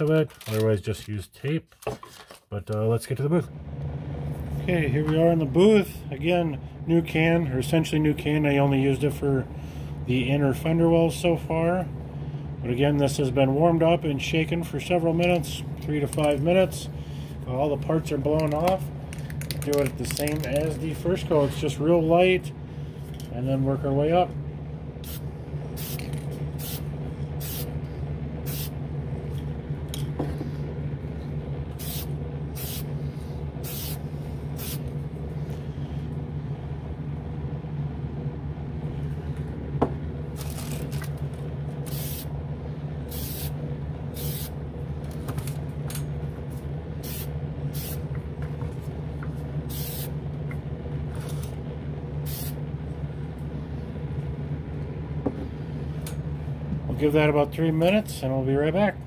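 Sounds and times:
fan humming: 0.0s - 59.0s
aerosol spray can hissing: 25.8s - 27.7s, 28.5s - 28.7s, 31.8s - 32.9s, 33.6s - 34.0s, 34.6s - 34.9s, 41.9s - 42.3s, 43.1s - 43.6s, 44.2s - 44.5s, 47.0s - 48.0s, 49.7s - 50.1s, 52.3s - 52.6s.

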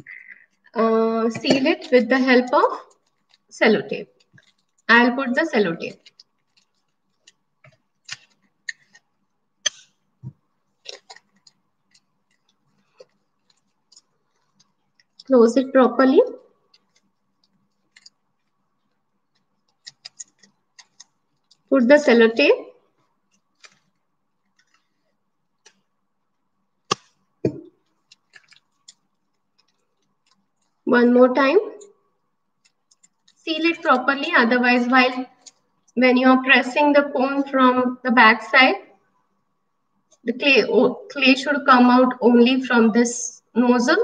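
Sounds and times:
plastic crinkling: 1.4s - 15.4s, 22.8s - 30.9s
tape wrapping ticks: 5.9s - 10.0s, 32.6s - 33.4s.

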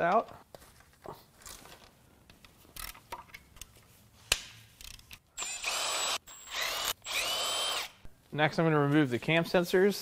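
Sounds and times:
cordless power tool whine: 5.4s - 8.0s.

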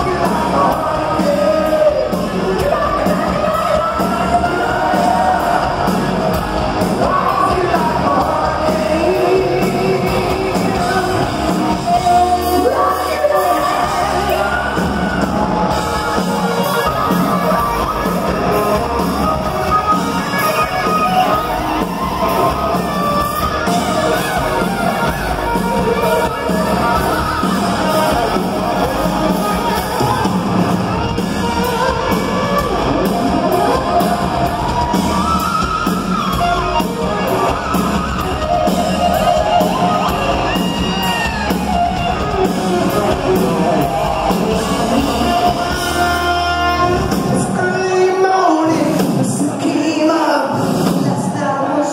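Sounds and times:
bass guitar: 0.0s - 49.6s
distorted electric guitar: 0.0s - 49.8s.

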